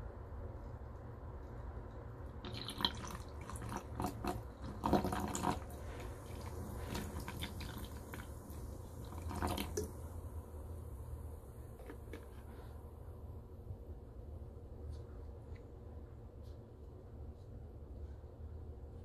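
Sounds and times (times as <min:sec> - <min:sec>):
sparkling water pouring into glass: 0:02.5 - 0:10.0.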